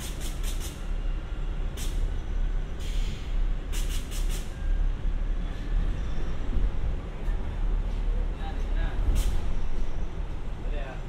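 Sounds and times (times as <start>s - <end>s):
short air hisses: 0.0s - 0.9s, 1.7s - 2.1s, 2.8s - 4.6s, 9.1s - 9.6s.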